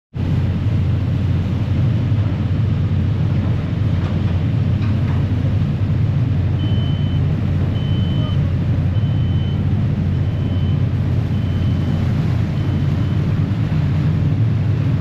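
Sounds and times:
diesel engines rumbling: 0.2 - 15.0
high electronic warning beep: 6.6 - 7.2, 7.8 - 13.2.

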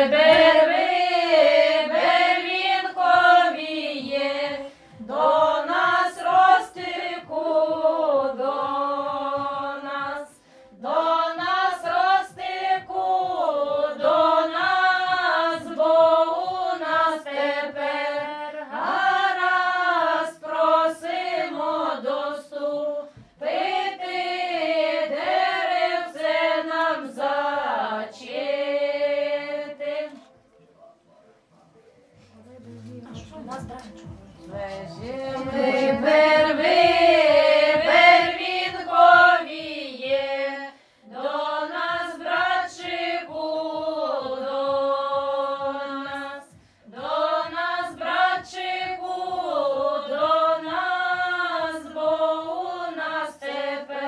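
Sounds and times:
women singing together: 0.0 - 30.3, 32.4 - 54.0.

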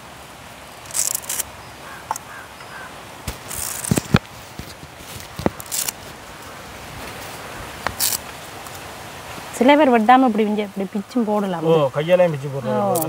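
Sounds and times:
vegetables rustling: 3.2 - 8.8.

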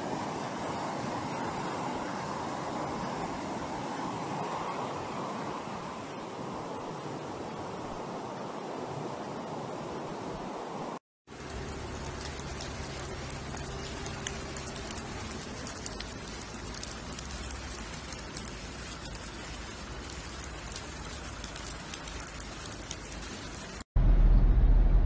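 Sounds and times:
rain on flooded street: 11.3 - 23.9
low hum: 24.0 - 25.0.

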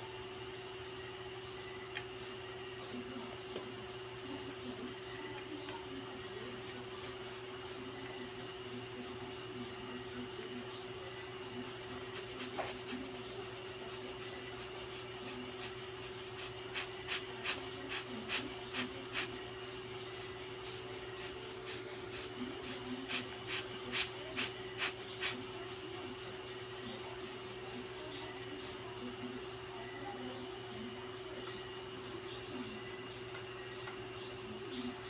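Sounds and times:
steady hum: 0.0 - 35.0.

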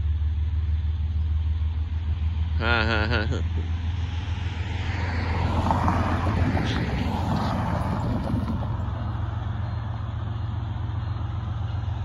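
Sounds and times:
car driving past: 3.5 - 12.0.

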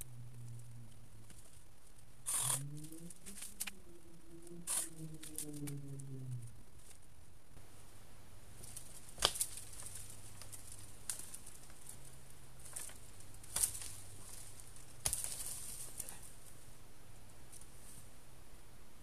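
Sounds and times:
branches rustling: 0.0 - 18.2
branches snapping: 8.6 - 16.5.

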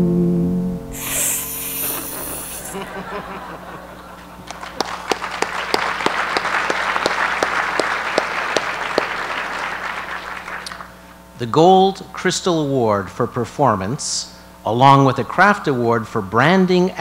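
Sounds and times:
audience applauding: 2.6 - 10.9.

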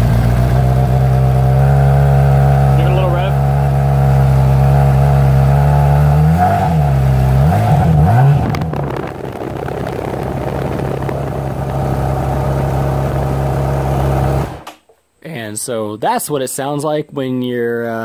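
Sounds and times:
motorcycle engine revving and idling: 0.0 - 14.7.

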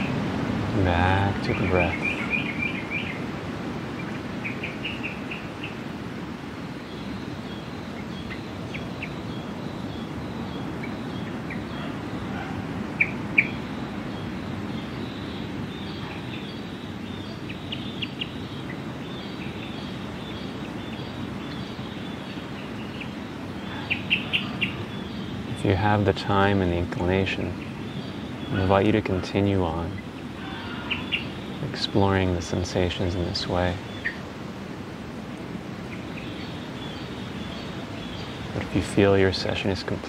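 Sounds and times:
birds chirping: 0.0 - 40.0.

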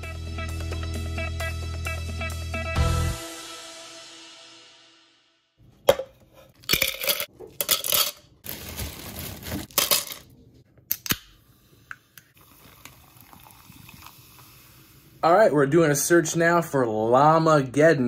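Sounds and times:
hard objects clinking and clattering: 5.9 - 10.3.

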